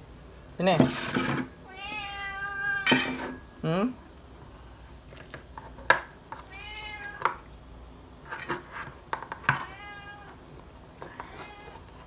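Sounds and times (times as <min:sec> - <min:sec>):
cat meowing: 0:01.7 - 0:03.0, 0:06.4 - 0:07.4, 0:09.5 - 0:10.4, 0:11.0 - 0:11.9.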